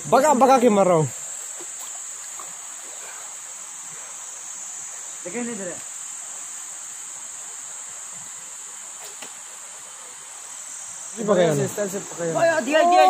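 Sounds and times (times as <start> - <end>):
insects chirring: 0.0 - 13.0.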